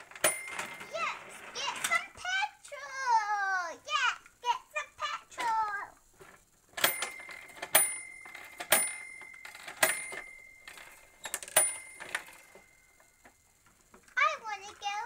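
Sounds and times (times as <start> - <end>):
small toy bell ringing: 0.2 - 2.1, 6.8 - 13.6.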